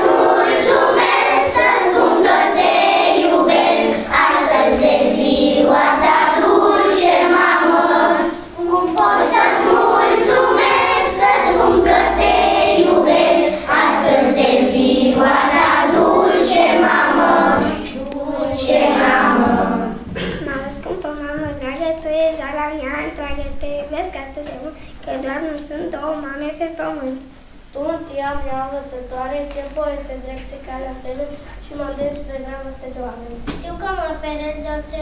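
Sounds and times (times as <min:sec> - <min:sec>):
children singing together: 0:00.0 - 0:20.4.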